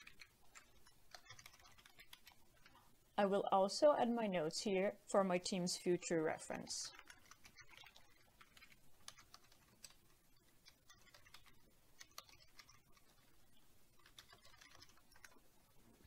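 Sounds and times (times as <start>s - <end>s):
faint keyboard typing: 0.0s - 2.9s, 6.6s - 15.5s.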